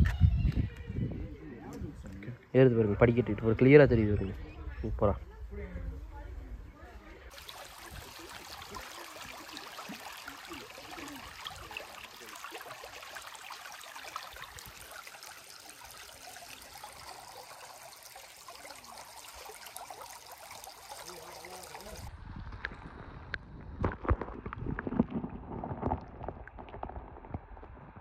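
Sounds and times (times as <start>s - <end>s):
water flowing: 7.3s - 22.1s.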